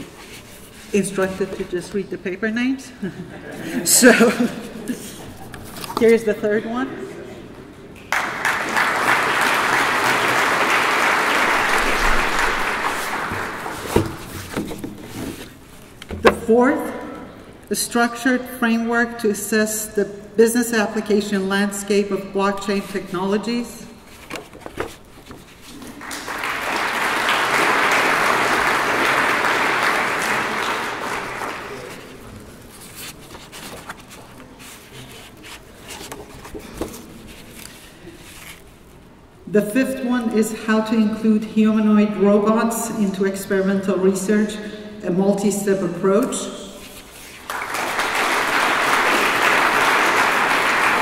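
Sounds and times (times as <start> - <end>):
audience applauding: 8.1 - 14.2, 25.8 - 32.2, 47.3 - 51.0.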